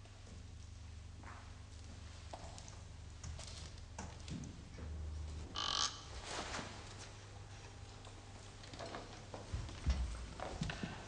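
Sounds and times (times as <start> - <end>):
low hum: 4.6 - 6.2
squeaky creak: 5.5 - 6.1.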